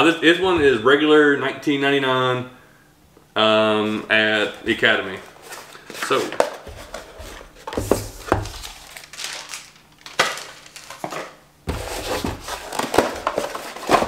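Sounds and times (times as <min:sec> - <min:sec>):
cardboard rustling: 0:03.8 - 0:14.0
cardboard rubbing and scraping: 0:11.7 - 0:14.0.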